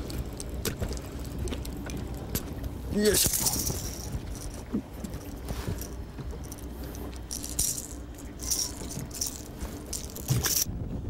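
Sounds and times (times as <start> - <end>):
fishing lure hooks rattling: 3.0 - 10.7.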